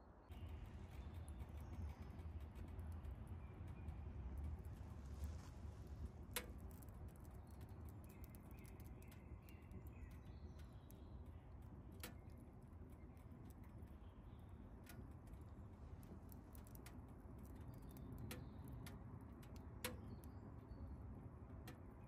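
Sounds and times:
low rumble: 0.3s - 7.2s.

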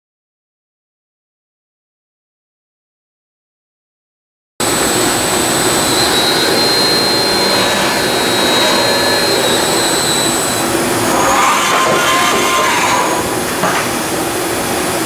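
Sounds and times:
high machine whine: 4.6s - 15.0s
machining center running: 4.6s - 15.0s.

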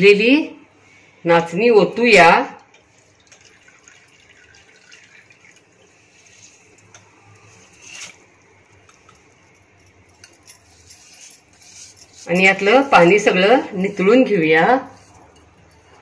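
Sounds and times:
water trickling and dripping: 2.7s - 7.4s
water pouring: 2.8s - 9.4s.

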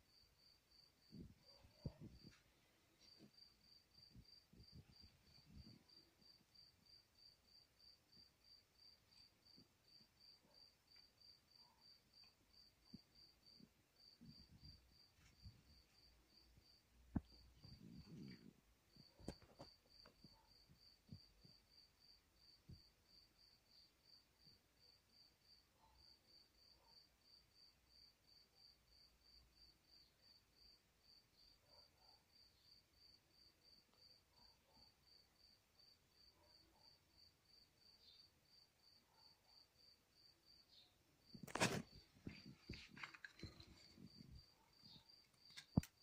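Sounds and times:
cricket chirping: 0.0s - 46.0s.

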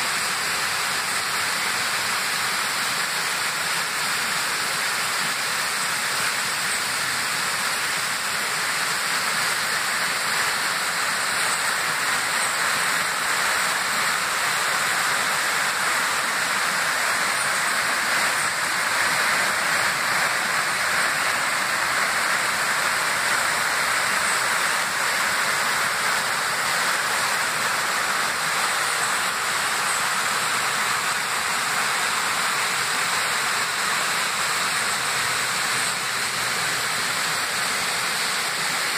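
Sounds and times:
mountain stream rushing over rocks: 0.0s - 38.9s.

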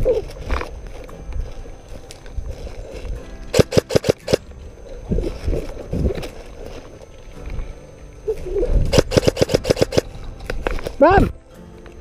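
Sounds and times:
airsoft gun shots: 3.5s - 4.4s, 8.9s - 10.1s.

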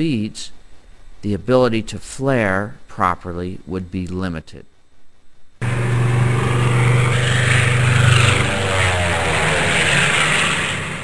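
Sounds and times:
propeller aircraft engine drone: 5.6s - 11.0s.

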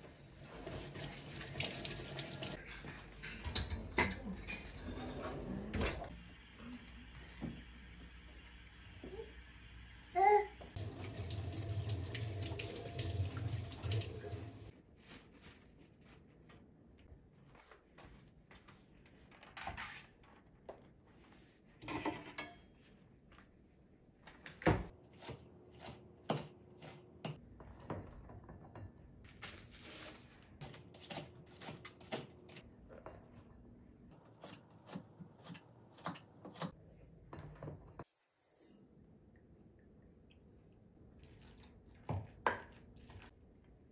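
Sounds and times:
knocks and clinks of kitchen utensils: 2.6s - 6.0s, 21.8s - 22.8s.

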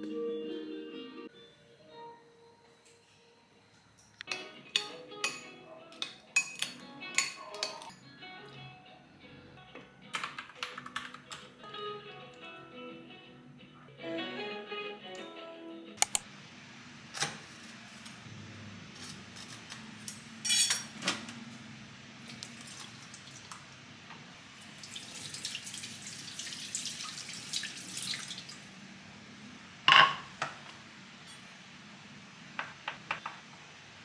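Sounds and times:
kitchen tap running: 22.2s - 23.6s, 24.6s - 28.7s.

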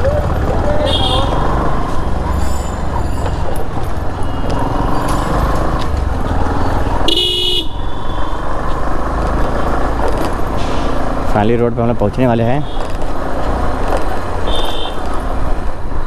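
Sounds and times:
engine and road rumble: 0.0s - 16.0s
vehicle horn honking: 0.8s - 1.4s, 7.0s - 8.4s, 14.4s - 15.0s.

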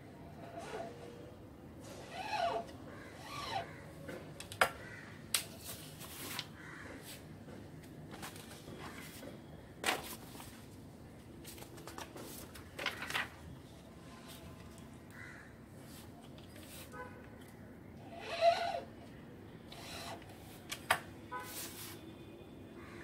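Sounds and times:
paper rustling: 8.1s - 9.2s, 11.4s - 13.5s.

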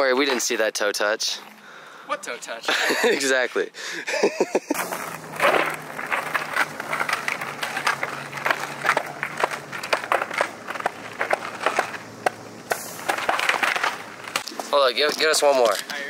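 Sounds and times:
skateboard wheels rolling: 4.7s - 16.0s
skateboard clacks on pavement: 4.8s - 16.0s.

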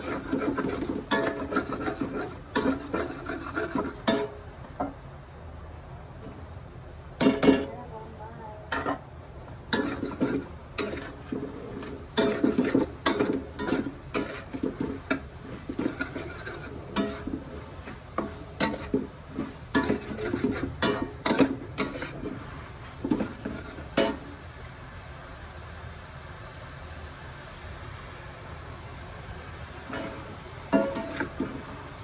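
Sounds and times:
metal spatula scraping wok: 0.0s - 5.0s, 7.2s - 7.8s, 8.7s - 9.0s, 9.7s - 24.4s, 29.9s - 32.0s.

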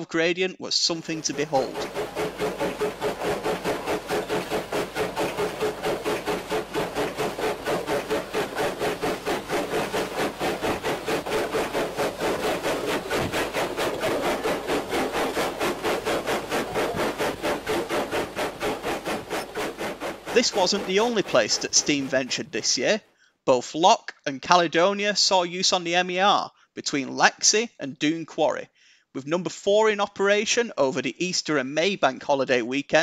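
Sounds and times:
steam locomotive chuffing: 1.0s - 23.0s.

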